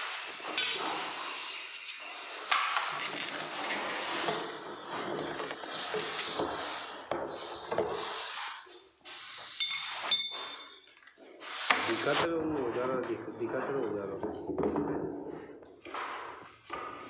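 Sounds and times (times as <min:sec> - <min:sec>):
metallic clinks ringing: 0:09.6 - 0:10.9.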